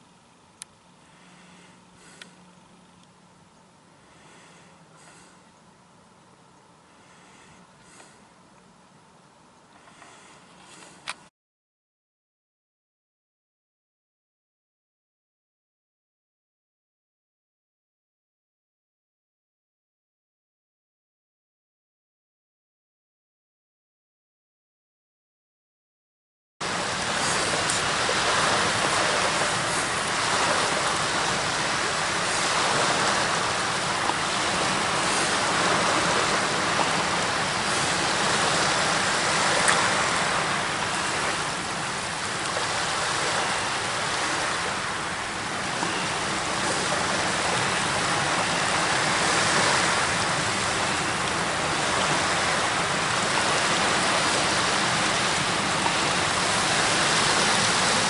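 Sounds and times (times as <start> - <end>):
river water rushing on bank: 26.6 - 58.0.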